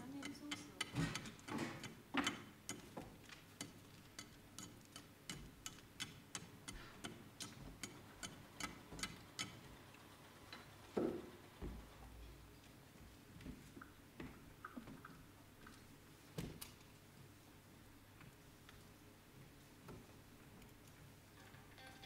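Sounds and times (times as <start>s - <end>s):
sharp ticking clicks: 3.6s - 9.6s.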